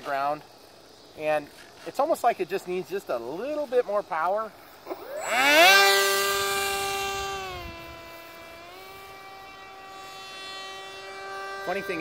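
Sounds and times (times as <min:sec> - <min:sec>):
electric motor propeller whine: 0:04.8 - 0:12.0.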